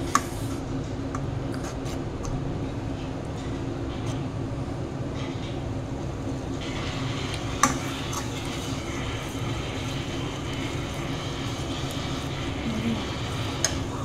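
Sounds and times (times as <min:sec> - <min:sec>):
sizzling hiss: 0:06.6 - 0:14.0.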